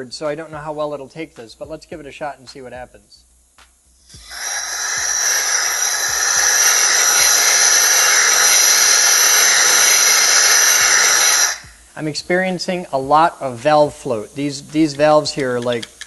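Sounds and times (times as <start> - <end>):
compressed air hissing: 3.9 - 15.2.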